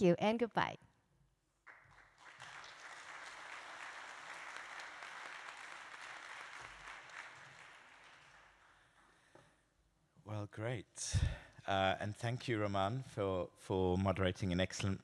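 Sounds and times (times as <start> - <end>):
audience applauding: 1.7 - 8.9.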